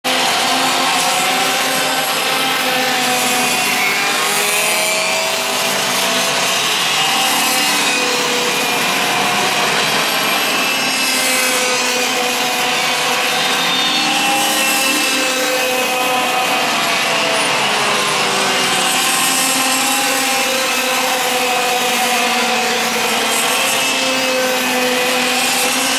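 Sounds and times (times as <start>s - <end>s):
racing kart engines buzzing: 0.0s - 25.9s.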